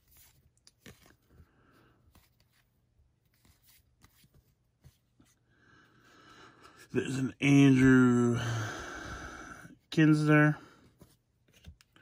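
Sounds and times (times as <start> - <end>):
trading cards flicking and sliding: 0.0 - 5.0.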